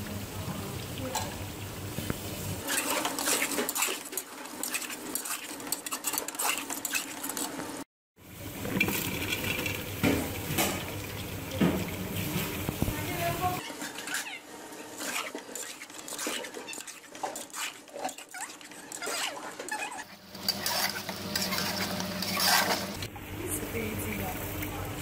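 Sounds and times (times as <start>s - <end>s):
metal spoon scraping a pot: 2.6s - 7.6s, 13.4s - 14.4s, 15.0s - 23.1s.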